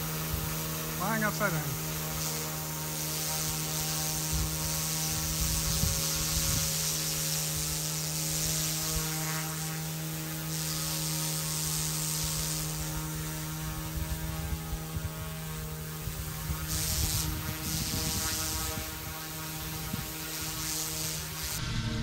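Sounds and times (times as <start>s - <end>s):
electric motor and rotors whining: 0.0s - 22.0s
low uneven rumble: 21.6s - 22.0s.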